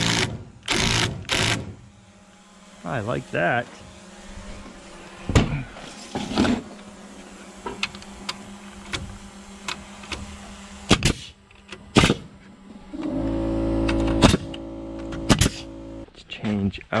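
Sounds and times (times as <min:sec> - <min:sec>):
nail gun clicks: 0:00.0 - 0:01.7
nail gun shots: 0:00.0 - 0:01.8, 0:10.9 - 0:12.3, 0:14.2 - 0:14.6, 0:15.3 - 0:15.6
steady motor hum: 0:00.0 - 0:16.1.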